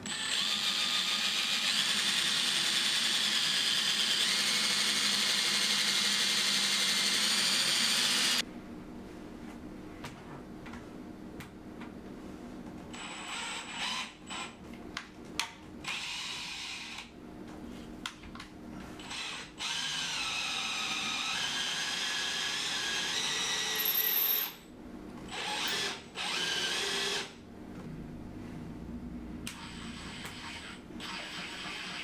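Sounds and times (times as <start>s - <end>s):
cordless drill whining: 0.0s - 8.4s, 19.0s - 24.6s, 25.3s - 27.3s.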